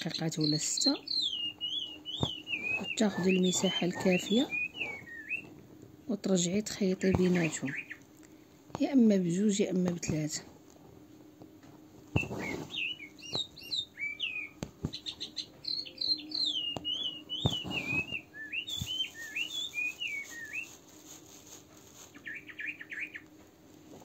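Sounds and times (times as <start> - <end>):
songbird chirping and trilling: 0.0 - 8.3, 12.1 - 21.1, 21.8 - 23.5.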